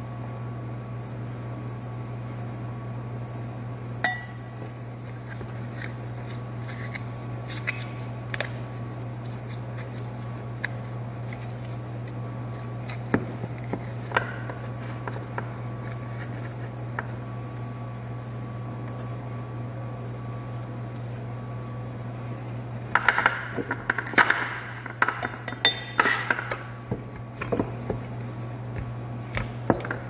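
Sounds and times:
steady low hum: 0:00.0 - 0:30.0
sharp clink with ring: 0:04.0 - 0:04.6
utensils clinking on dishes: 0:25.2 - 0:26.5.

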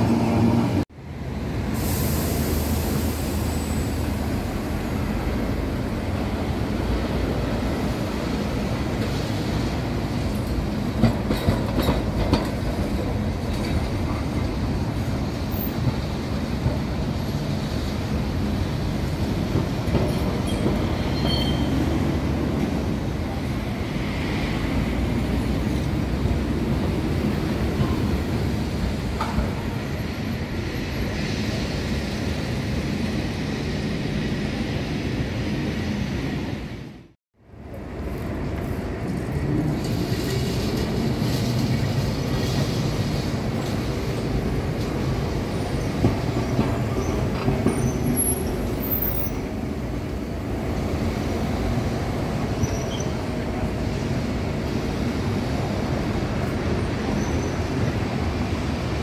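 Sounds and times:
tram rumbling on rails: 0:00.0 - 0:59.0
high wheel squeal: 0:20.4 - 0:22.0, 0:52.5 - 0:53.3, 0:57.1 - 0:57.9.

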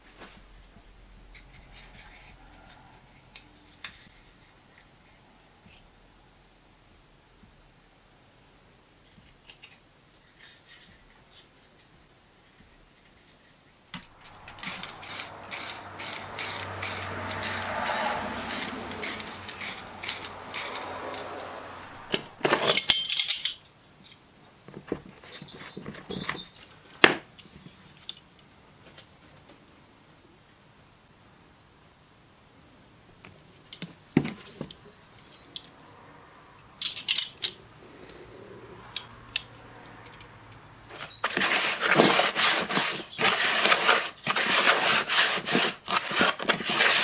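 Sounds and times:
faint scrapes: 0:01.2 - 0:05.8, 0:13.1 - 0:22.4
spray can rattling: 0:14.3 - 0:20.9
spray paint burst: 0:14.3 - 0:20.9.

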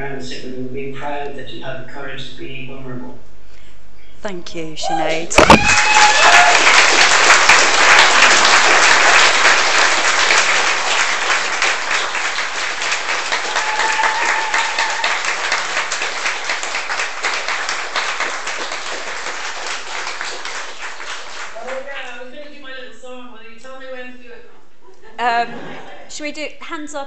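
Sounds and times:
audience applauding: 0:05.4 - 0:22.4.

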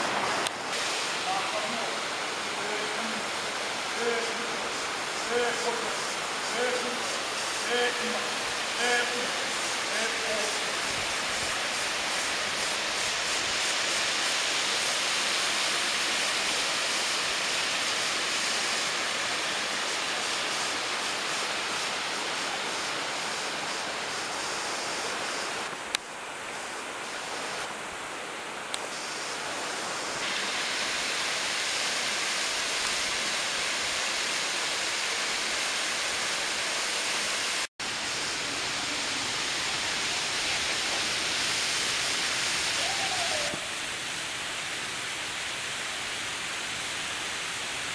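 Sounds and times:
waterfall rushing: 0:00.0 - 0:47.9.

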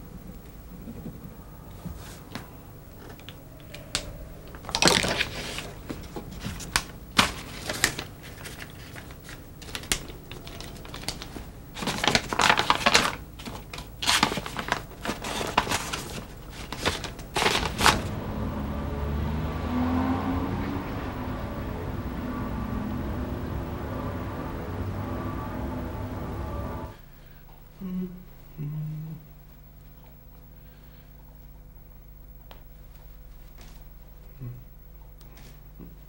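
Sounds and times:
paper rustling and crackling: 0:01.9 - 0:18.2.

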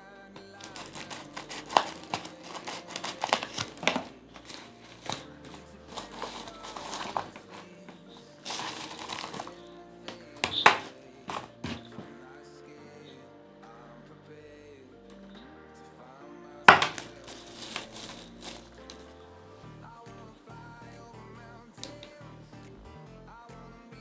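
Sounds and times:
background music: 0:00.0 - 0:24.0
plastic bag crinkling: 0:00.6 - 0:07.7, 0:08.4 - 0:09.5.

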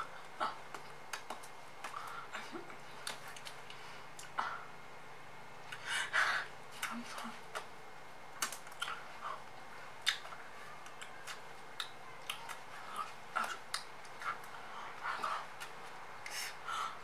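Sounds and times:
mouth clicks: 0:10.0 - 0:14.6.

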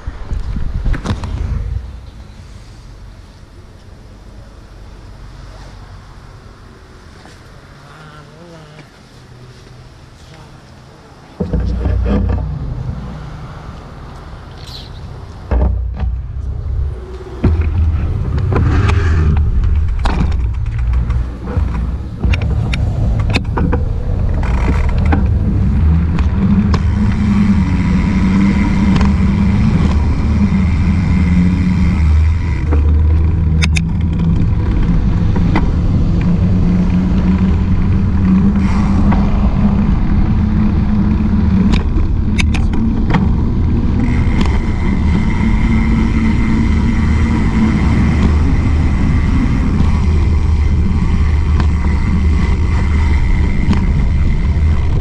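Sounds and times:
road traffic: 0:00.0 - 0:55.0
wind and rolling noise: 0:00.0 - 0:55.0
bike knocking over bumps: 0:15.4 - 0:55.0.

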